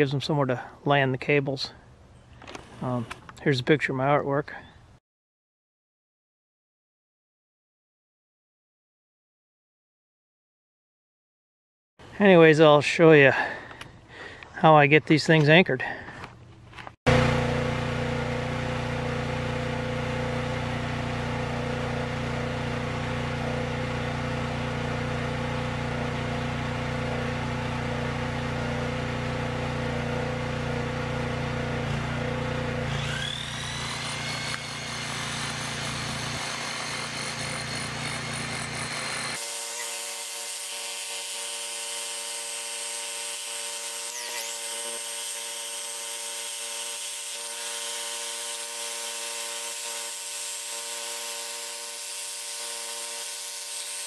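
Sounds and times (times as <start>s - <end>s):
steady machine hum: 17.1s - 39.4s
power tool motor whining: 17.1s - 54.0s.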